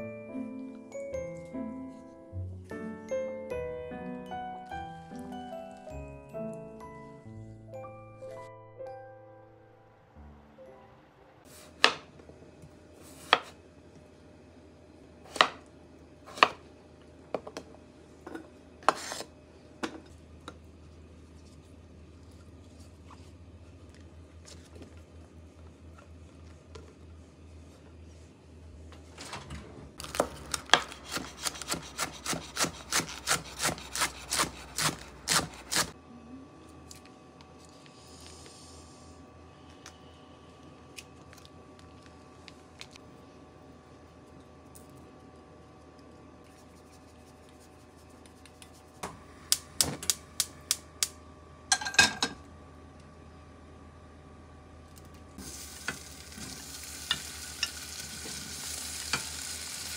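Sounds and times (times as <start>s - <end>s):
knife chopping on cutting board: 30.1s - 35.9s.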